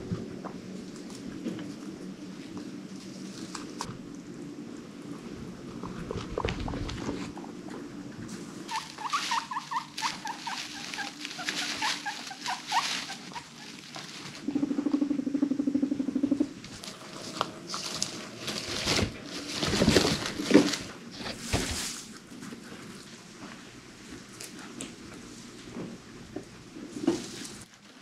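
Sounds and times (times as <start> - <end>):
guinea pig rumbling purr: 0.0 - 28.0
scuffling on bedding: 8.7 - 14.4
guinea pig squeaks: 8.7 - 15.1.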